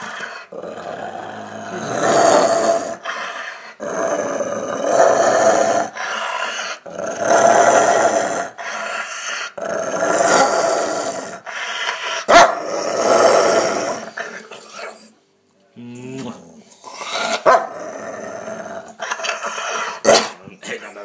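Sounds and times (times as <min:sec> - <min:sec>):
dog growling: 0:00.0 - 0:15.1, 0:15.8 - 0:20.5.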